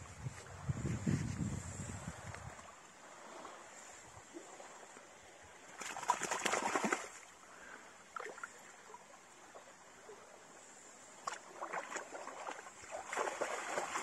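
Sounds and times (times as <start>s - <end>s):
dog splashing in water: 5.8s - 7.2s, 11.6s - 14.0s.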